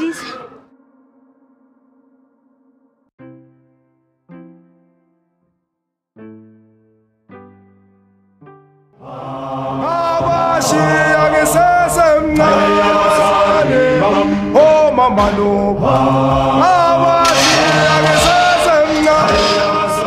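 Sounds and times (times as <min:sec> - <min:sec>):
group of voices chanting: 0:09.0 - 0:20.0.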